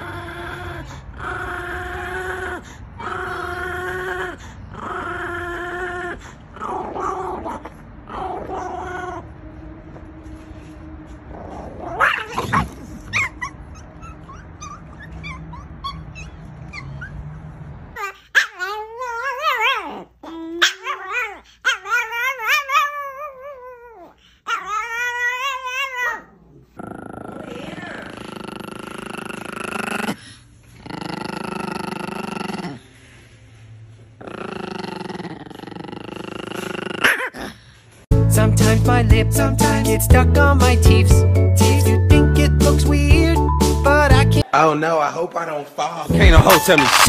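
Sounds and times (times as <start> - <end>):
dogs whining: 0.0 - 9.5, 11.1 - 28.0
dog yelp: 11.8 - 17.3, 18.0 - 26.3.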